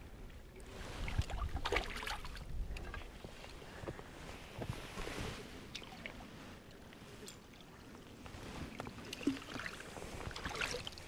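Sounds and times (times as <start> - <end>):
wind rumble on microphone: 0.0 - 7.2.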